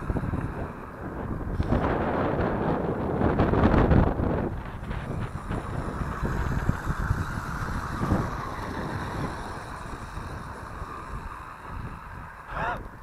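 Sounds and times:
electric motor whine: 0:00.0 - 0:13.0
wind buffeting microphone: 0:00.0 - 0:13.0.

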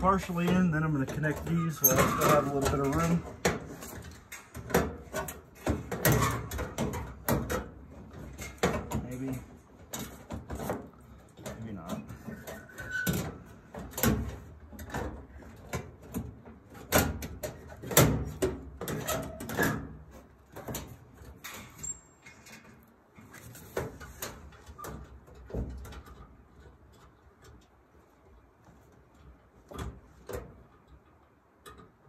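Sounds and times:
clicks and knocks in metal cabinet: 0:00.0 - 0:21.8.

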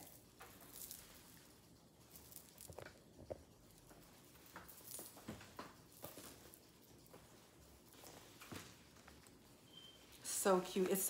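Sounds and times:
leather bag clicks and rustles: 0:02.1 - 0:09.2.

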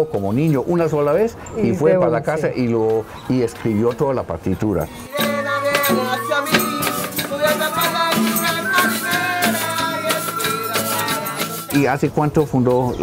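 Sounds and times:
man singing: 0:04.7 - 0:12.0
maracas and shakers: 0:04.9 - 0:12.0.

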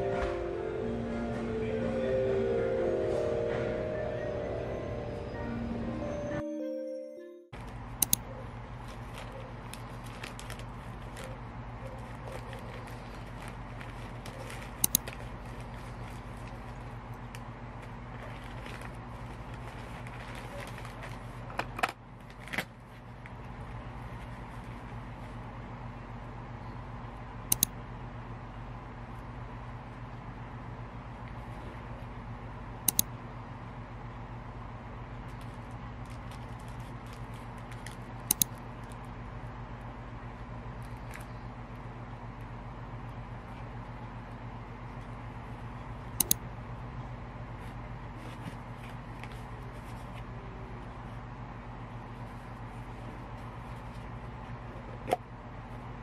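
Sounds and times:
steady low hum: 0:00.0 - 0:06.8, 0:07.5 - 0:56.0
sharp plastic crackles: 0:07.6 - 0:25.1, 0:35.2 - 0:39.2, 0:40.7 - 0:41.8
plastic packaging rustling: 0:07.6 - 0:25.4, 0:35.2 - 0:39.1
sharp clicks: 0:08.0 - 0:08.3, 0:14.8 - 0:15.1, 0:27.5 - 0:27.8, 0:32.8 - 0:33.1, 0:38.3 - 0:38.6, 0:46.2 - 0:46.4
bubble wrap crinkling: 0:08.5 - 0:25.5, 0:35.2 - 0:39.1.

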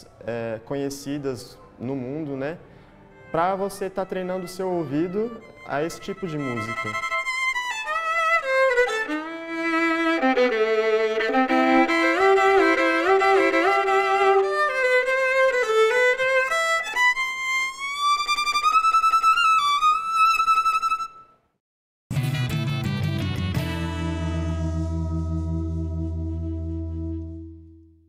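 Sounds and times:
solo violin melody: 0:03.1 - 0:21.3.

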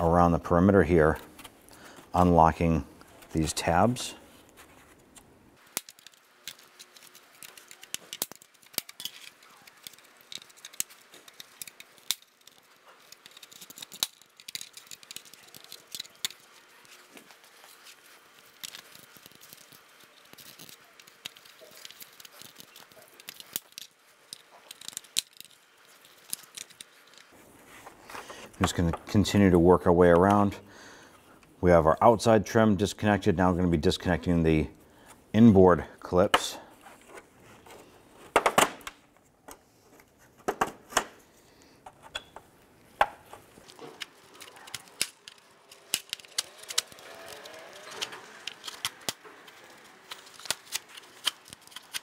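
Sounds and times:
plastic clips clicking and snapping: 0:05.6 - 0:17.6, 0:43.0 - 0:52.0
plastic scraping and rattling: 0:43.0 - 0:52.0.

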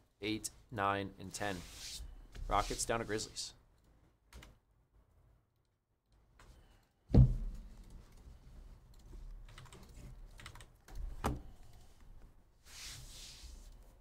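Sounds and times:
hard thump: 0:07.1 - 0:07.6
keyboard keys clicking: 0:09.5 - 0:10.8.

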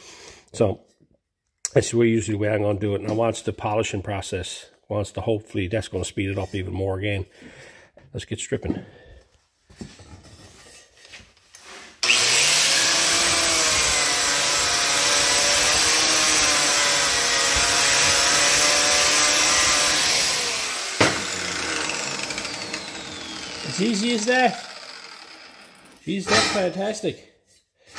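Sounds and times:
angle grinder grinding metal: 0:11.6 - 0:27.1.

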